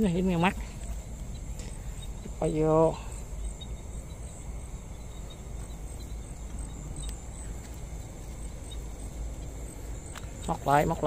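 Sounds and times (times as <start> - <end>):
insects chirping: 0.0 - 11.0
low rumble: 0.0 - 11.0.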